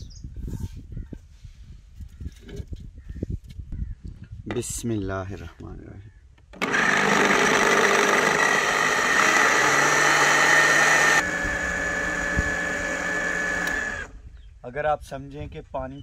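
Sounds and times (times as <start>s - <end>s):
electric blender running: 6.6s - 14.1s.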